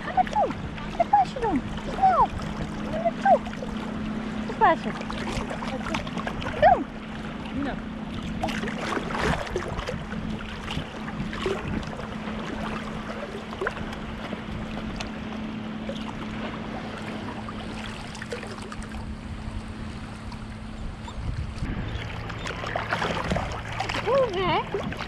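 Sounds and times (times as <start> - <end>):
lake waves lapping and splashing: 0.0 - 25.0
steady low hum: 0.0 - 25.0.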